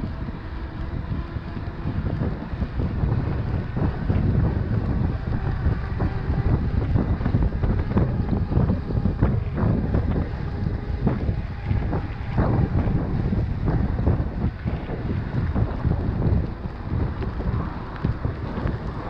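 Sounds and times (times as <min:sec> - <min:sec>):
bike knocks and rattles: 0:00.0 - 0:19.0
wind buffeting microphone: 0:00.0 - 0:19.0.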